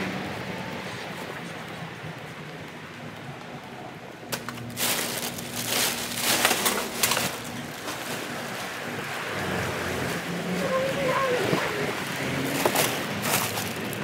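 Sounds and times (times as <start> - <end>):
steady low hum: 0.2 - 10.5
crinkling handling noise: 4.2 - 9.1, 12.5 - 14.0.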